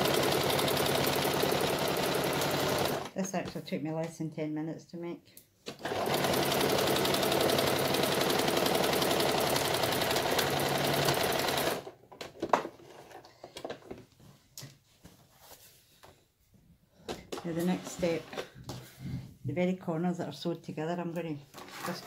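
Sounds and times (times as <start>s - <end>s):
sewing machine stitching: 0.0s - 3.2s, 5.7s - 11.9s.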